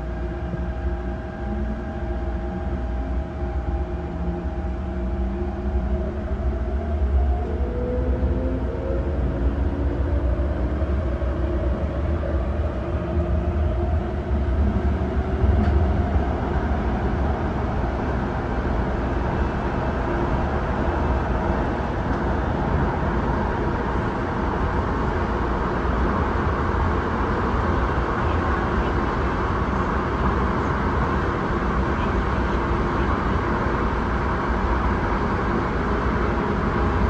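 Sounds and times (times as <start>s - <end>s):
train rumbling on rails: 0.0s - 37.0s.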